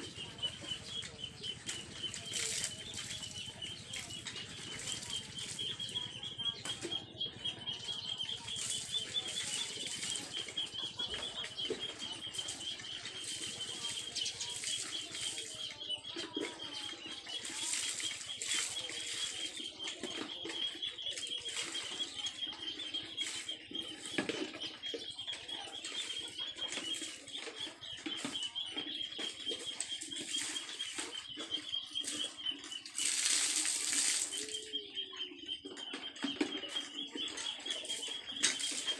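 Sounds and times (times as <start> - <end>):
water splashing: 31.9 - 34.5.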